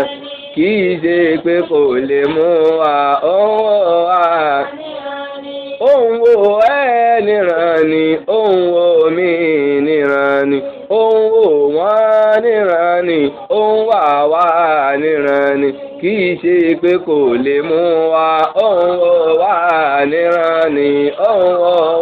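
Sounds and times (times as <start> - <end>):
man singing unaccompanied: 0.0 - 22.0.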